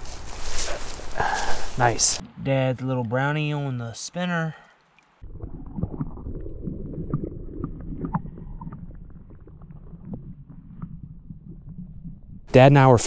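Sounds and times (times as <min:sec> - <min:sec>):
underwater rumble of moving water: 0:05.2 - 0:13.0.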